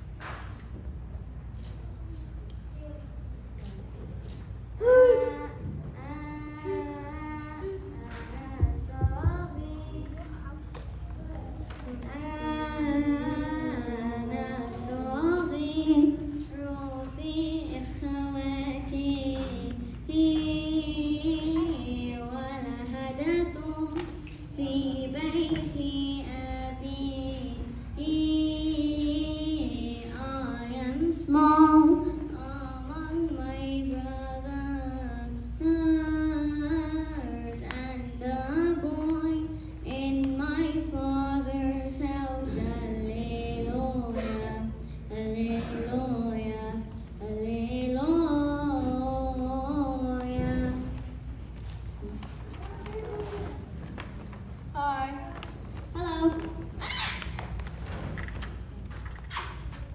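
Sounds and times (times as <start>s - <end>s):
children singing a hymn: 11.8s - 51.1s.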